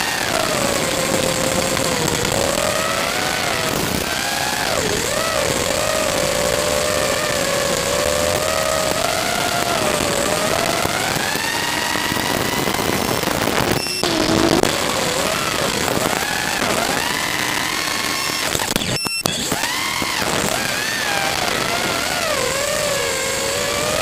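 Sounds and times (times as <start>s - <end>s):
drone propellers whining: 0.0s - 18.5s
radio hiss: 0.0s - 18.8s.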